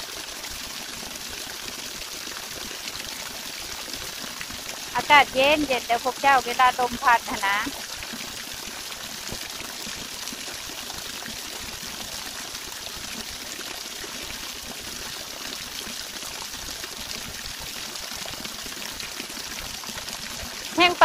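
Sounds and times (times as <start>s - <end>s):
waterfall rushing: 5.0s - 7.8s.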